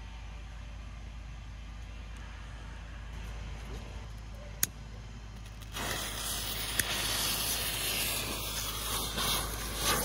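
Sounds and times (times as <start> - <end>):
fuses hissing: 5.4 - 10.0.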